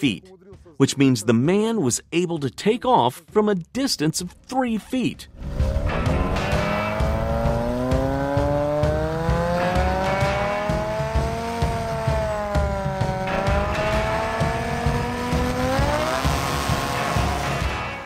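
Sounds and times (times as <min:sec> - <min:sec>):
choppy low rumble: 0:04.3 - 0:07.8
aircraft engine and propeller running: 0:05.3 - 0:18.0.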